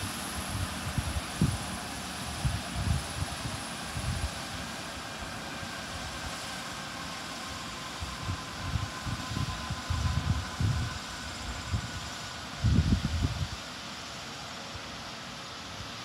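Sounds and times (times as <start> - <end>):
helicopter turbine whine: 0.0 - 16.0
wind rumble on microphone: 0.4 - 4.5, 8.0 - 13.6.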